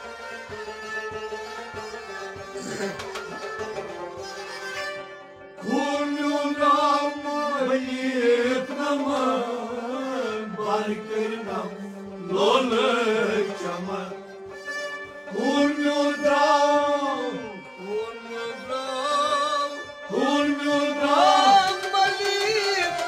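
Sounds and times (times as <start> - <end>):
stringed instruments playing: 0.0 - 23.0
man singing: 5.6 - 14.2, 15.3 - 23.0.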